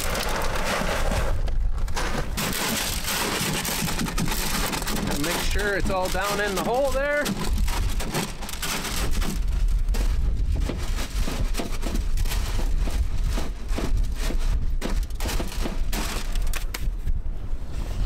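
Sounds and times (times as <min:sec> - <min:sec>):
wind buffeting microphone: 0:08.9 - 0:18.0.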